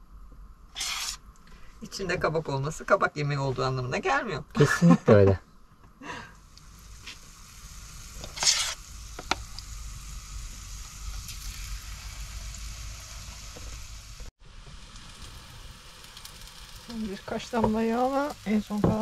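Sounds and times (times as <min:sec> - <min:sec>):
batter sizzling in hot oil: 0:00.8 - 0:01.2, 0:06.0 - 0:19.0.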